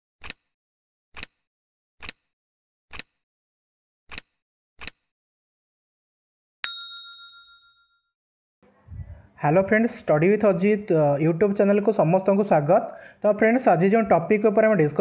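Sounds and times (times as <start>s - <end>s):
bright chime ding: 6.6s - 8.0s.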